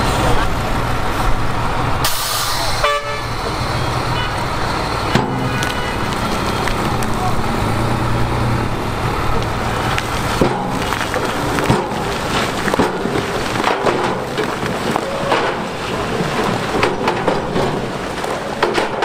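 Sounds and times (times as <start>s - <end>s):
continuous rumble: 0.0s - 19.0s
stones clattering from truck bed: 9.4s - 19.0s
rocks knocking on steel: 10.4s - 19.0s.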